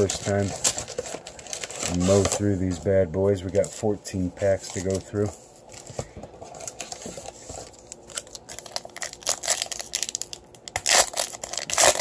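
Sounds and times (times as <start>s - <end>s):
plastic foil wrapper crinkling: 0.0s - 2.8s, 6.6s - 12.0s.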